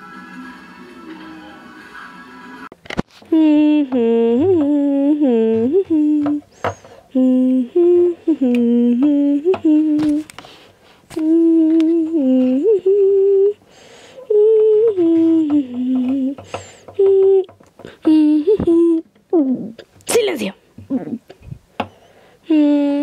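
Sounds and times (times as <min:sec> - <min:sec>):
person humming: 0:03.3 - 0:10.3, 0:11.1 - 0:13.6, 0:14.2 - 0:19.9, 0:22.4 - 0:23.0.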